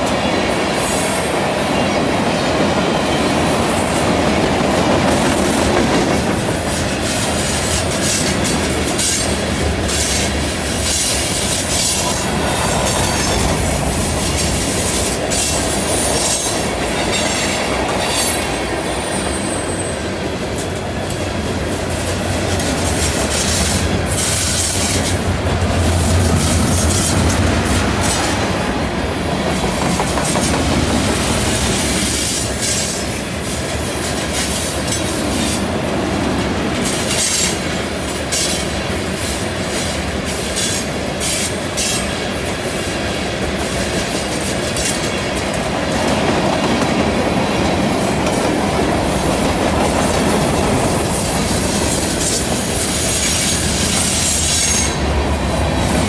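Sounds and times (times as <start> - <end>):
train wheels rumbling and rattling: 0.0 - 56.0
wheel squeal: 19.0 - 20.1.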